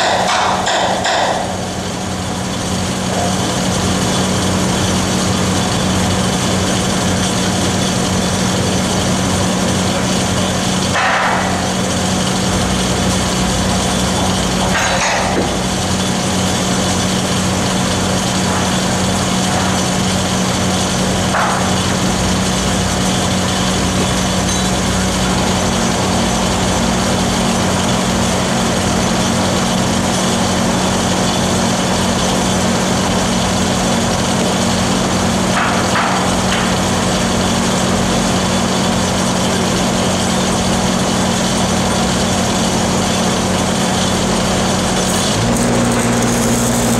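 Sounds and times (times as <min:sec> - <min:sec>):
welding machine engine drone: 0:00.0 - 0:46.9
welding arc crackle and hiss: 0:07.9 - 0:28.6, 0:43.6 - 0:46.9.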